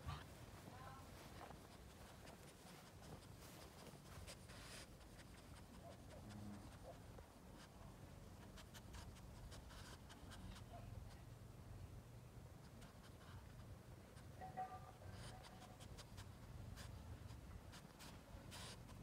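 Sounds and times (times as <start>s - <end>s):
rustling grass and leaves: 0.0s - 6.3s.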